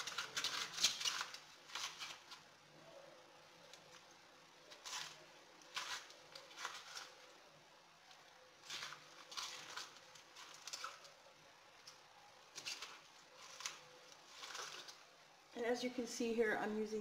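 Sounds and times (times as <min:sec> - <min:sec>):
spoon scraping artichoke: 0:00.0 - 0:02.7, 0:03.6 - 0:07.6, 0:08.4 - 0:15.3
faint scraping and rustling: 0:00.0 - 0:15.5.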